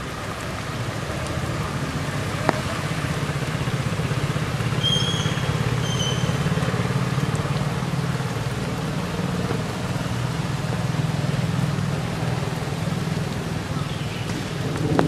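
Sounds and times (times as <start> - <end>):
rain hissing: 0.0 - 15.0
short high whistled calls: 4.8 - 6.4.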